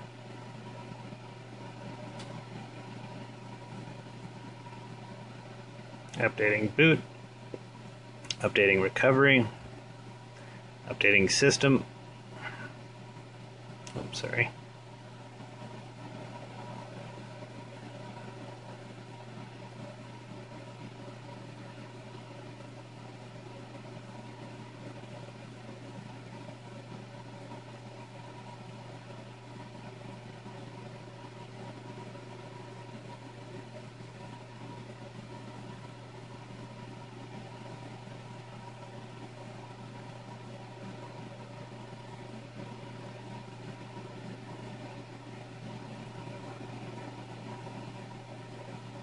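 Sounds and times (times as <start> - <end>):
low machine hum: 0.0 - 49.0.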